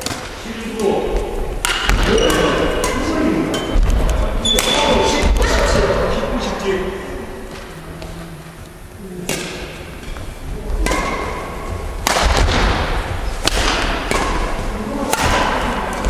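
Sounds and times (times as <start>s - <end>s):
badminton racket hitting shuttlecock: 0.0s - 5.7s, 10.7s - 16.0s.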